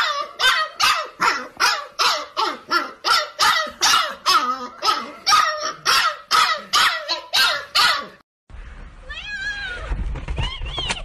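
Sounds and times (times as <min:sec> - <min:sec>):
puppy yapping: 0:00.0 - 0:08.2.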